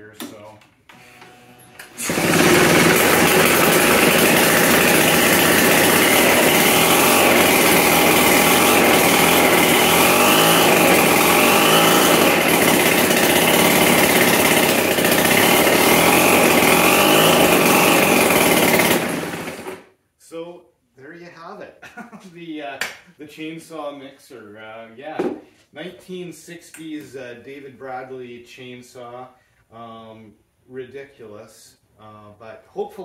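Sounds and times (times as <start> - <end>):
blender jar whine: 1.0 - 19.9
chainsaw engine running: 1.8 - 19.8.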